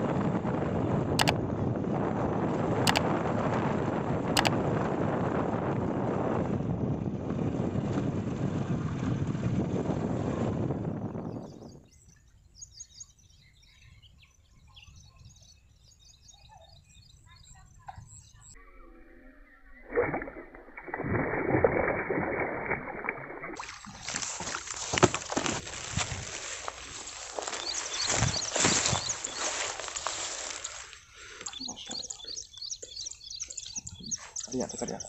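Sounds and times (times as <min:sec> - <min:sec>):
small birds chirping: 0:11.2 - 0:18.9, 0:26.3 - 0:35.0
water splashing: 0:19.8 - 0:30.9.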